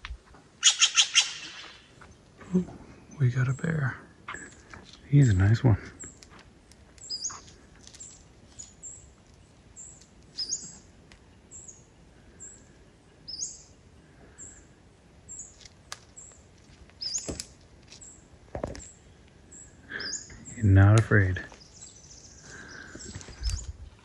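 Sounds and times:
bird chirping: 0.6 - 2.2, 7.0 - 14.7, 17.0 - 23.8.

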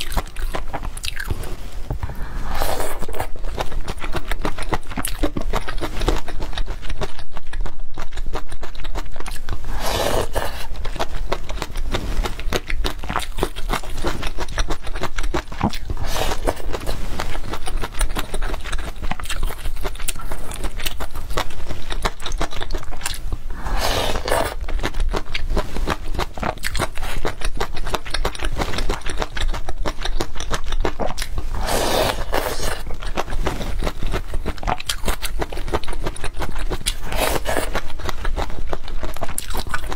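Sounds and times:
crunchy wet chewing: 0.0 - 39.9
noodle slurping: 9.6 - 10.7, 16.0 - 17.6, 23.5 - 24.6, 31.5 - 33.7, 36.8 - 37.9.

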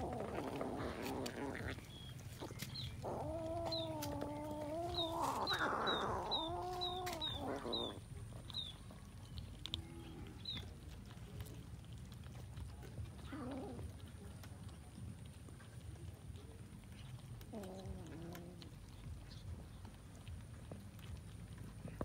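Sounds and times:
long drawn-out animal calls: 3.0 - 8.0.

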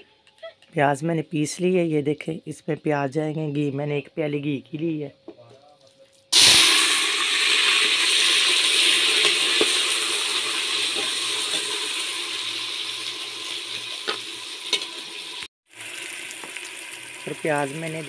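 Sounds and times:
onions sizzling in hot fat: 6.3 - 18.0.

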